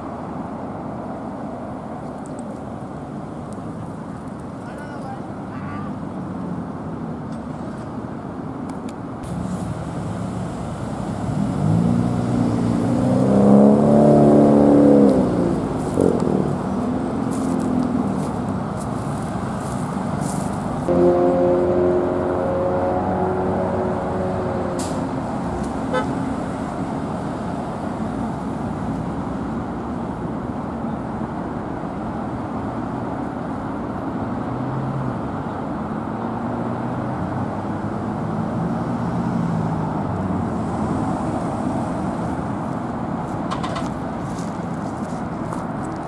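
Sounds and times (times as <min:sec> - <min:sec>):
road traffic rushing: 0:00.0 - 0:46.0
horn-like tone: 0:20.9 - 0:24.3, 0:25.9 - 0:26.2.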